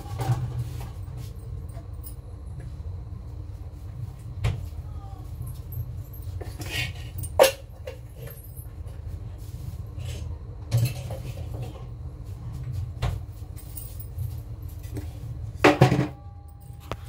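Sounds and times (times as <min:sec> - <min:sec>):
cupboard and utensils clattering: 0:00.0 - 0:02.1, 0:05.5 - 0:09.2, 0:10.0 - 0:12.0, 0:12.6 - 0:16.2
steady low hum: 0:00.0 - 0:17.0.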